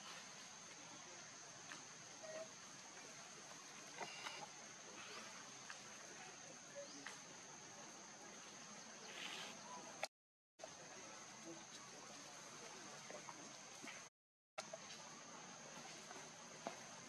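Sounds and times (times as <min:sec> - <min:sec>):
soft rustle: 0:08.6 - 0:09.8.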